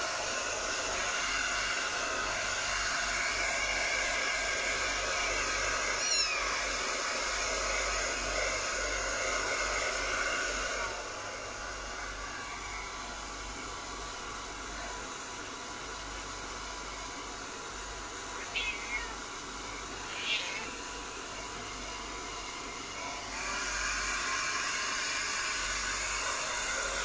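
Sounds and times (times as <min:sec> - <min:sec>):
hair dryer blowing: 0:00.0 - 0:27.0
kitten mew: 0:18.4 - 0:20.8.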